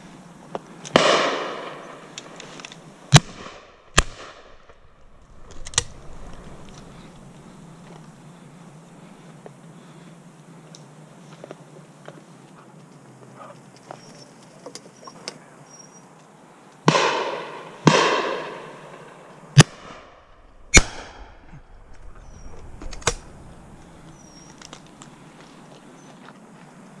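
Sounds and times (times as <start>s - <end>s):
shotgun shots with echo: 1.0s - 2.0s, 16.9s - 20.0s.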